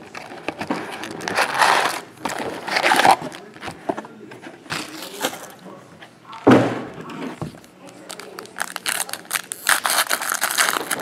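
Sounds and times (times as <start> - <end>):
cardboard scraping: 0.2 - 5.5
pack wrappers crinkling: 7.9 - 11.0.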